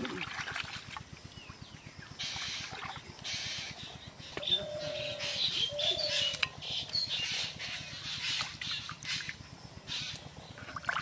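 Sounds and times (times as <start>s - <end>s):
water splashing and sloshing: 0.0s - 4.5s, 8.2s - 11.0s
birds calling: 1.2s - 11.0s.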